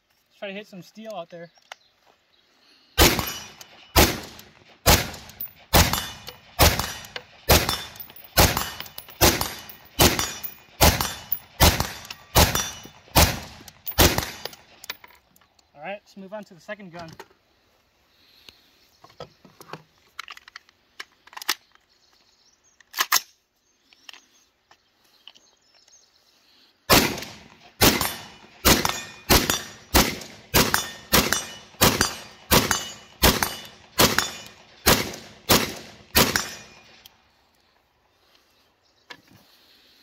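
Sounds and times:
rifle shots with echo: 3.0 - 14.5, 26.9 - 36.9
gun handling clicks: 3.1 - 15.7, 20.0 - 22.2, 22.8 - 26.0.

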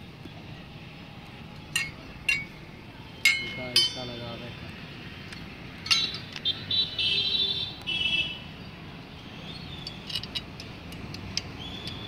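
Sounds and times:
metal parts clinking: 1.7 - 2.5, 3.2 - 4.1, 5.8 - 6.4, 9.8 - 12.0.

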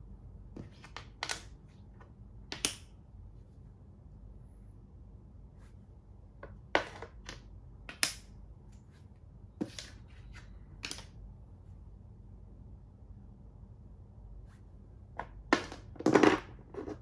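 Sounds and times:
chess pieces clicking on board: 10.8 - 11.1.

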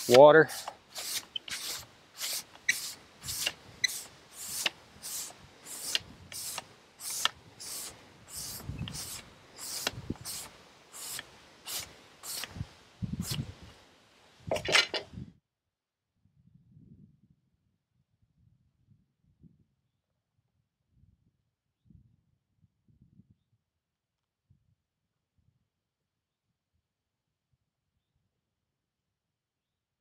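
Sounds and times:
broom bristles scraping wood: 0.0 - 13.6.

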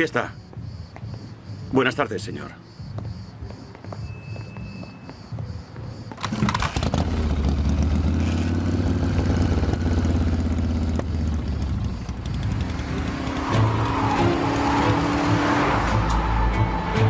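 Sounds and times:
motorcycle engine running: 6.2 - 15.3
sports car engine approaching: 6.8 - 16.2.

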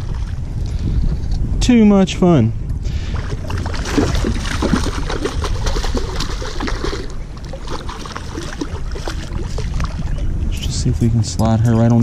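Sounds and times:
fish splashing at surface: 3.1 - 10.1.

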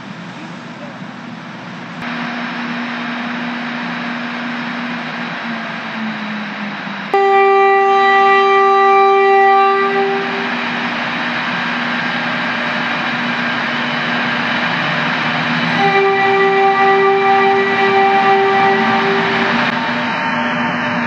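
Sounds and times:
train and station hum: 0.0 - 21.0
train horn blast: 7.1 - 10.8, 15.7 - 21.0.

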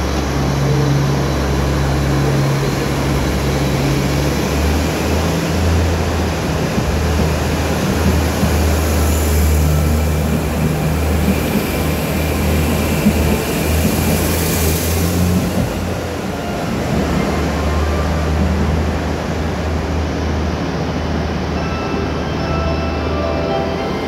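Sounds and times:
diesel train engine drone: 0.0 - 24.0
hiss of train wheels: 2.4 - 21.5.

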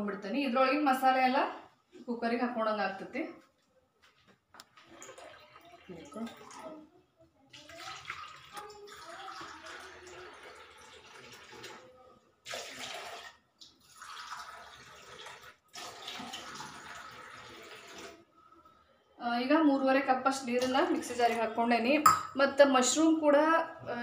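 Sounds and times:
water running into steel cup: 4.8 - 6.8, 12.5 - 18.2.

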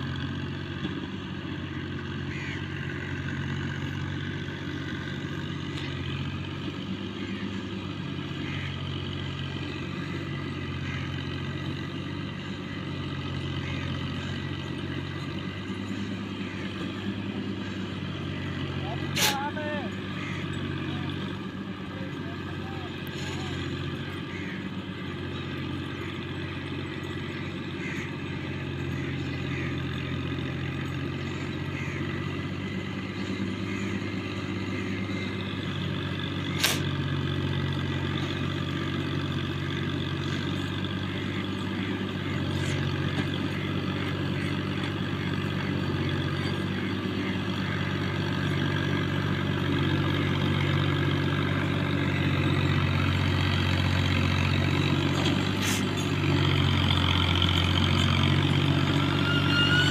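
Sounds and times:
tractor diesel engine running: 0.0 - 59.9
sharp click: 36.6 - 36.8.

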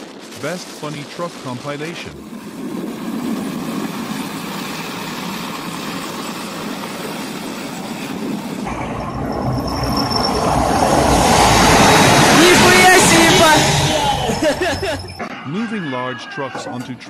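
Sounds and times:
tracked vehicle in snow: 2.1 - 15.2
tank driving on concrete: 2.5 - 15.2
brief high whine: 8.7 - 15.2.

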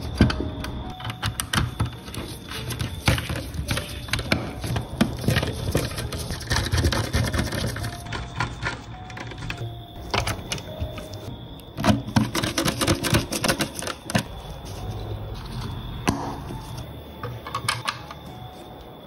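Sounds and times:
plastic and metal parts clicking: 11.8 - 14.4, 17.2 - 18.3.

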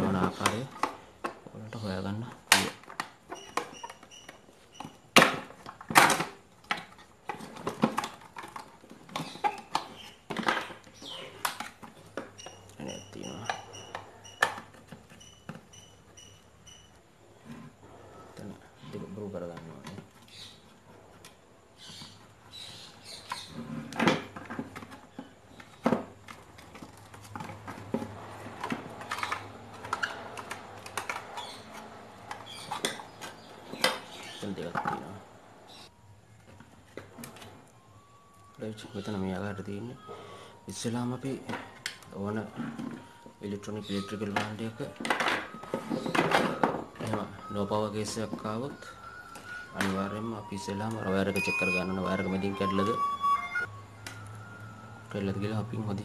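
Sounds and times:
clicks and scraping of plastic: 2.4 - 16.4, 19.5 - 35.2.

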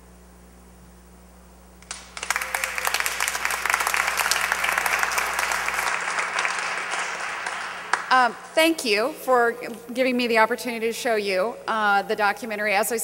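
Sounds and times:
faint steady hum: 0.0 - 13.0
audience applause: 1.8 - 8.6.

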